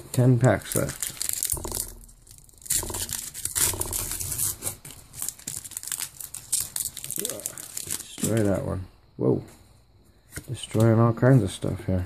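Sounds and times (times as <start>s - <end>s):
foil wrapper tearing and crinkling: 0.5s - 8.6s.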